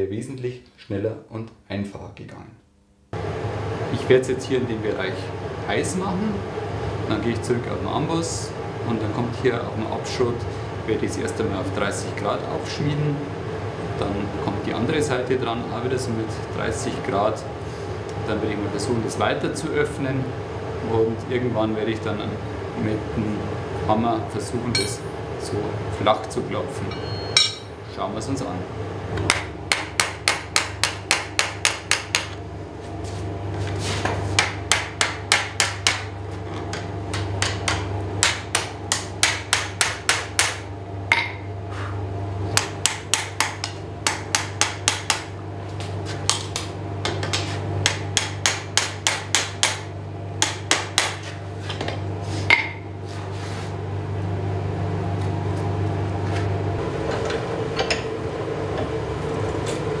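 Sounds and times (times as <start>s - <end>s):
steady low hum: 0.0s - 60.0s
hammer striking steel on anvil: 24.7s - 25.1s, 26.8s - 27.7s, 36.7s - 41.5s, 46.3s - 51.3s, 52.5s - 52.8s.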